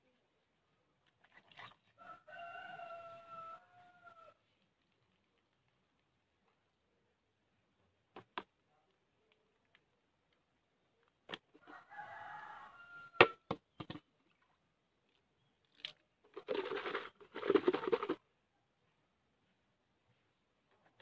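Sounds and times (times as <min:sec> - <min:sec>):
rooster crowing: 0:02.0 - 0:04.4, 0:11.6 - 0:13.4.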